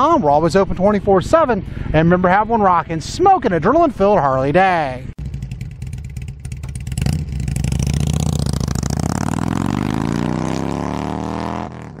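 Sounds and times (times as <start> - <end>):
motorcycle engine revving: 5.2 - 12.0.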